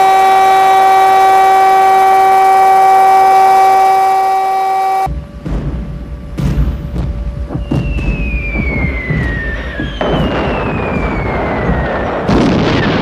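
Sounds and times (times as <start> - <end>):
falling bomb whistles: 0.0 - 5.1, 7.4 - 13.0
low battle rumble: 5.1 - 13.0
explosion blasts: 5.4 - 13.0.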